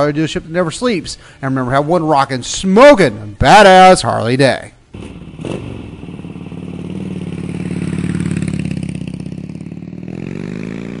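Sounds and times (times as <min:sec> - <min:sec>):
motorcycle engine revving: 0:04.9 - 0:11.0.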